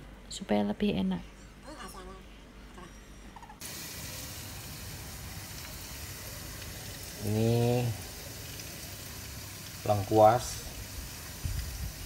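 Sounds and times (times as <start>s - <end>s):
oil sizzling in wok: 3.6s - 12.0s.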